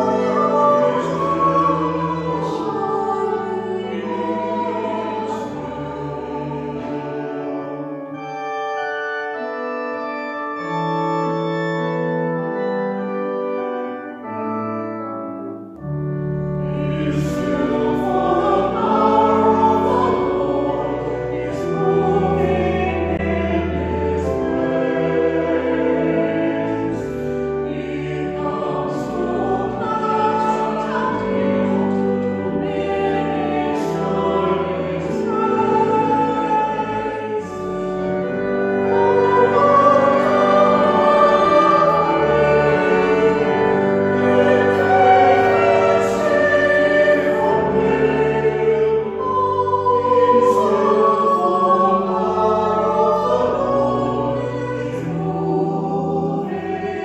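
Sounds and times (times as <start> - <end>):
choir singing slow chords: 0.0 - 57.0.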